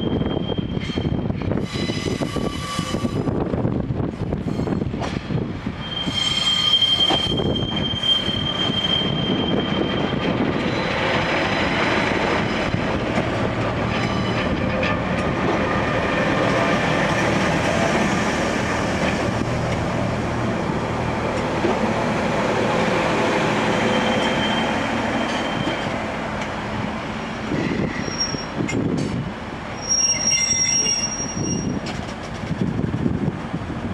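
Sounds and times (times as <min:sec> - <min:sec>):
high-pitched squeal: 0:05.8 - 0:11.3, 0:23.6 - 0:25.9.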